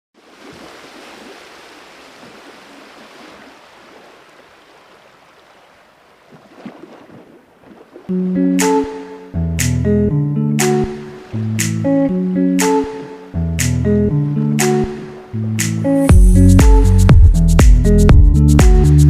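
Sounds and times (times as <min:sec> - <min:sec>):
guitar music: 0:08.1 - 0:19.0.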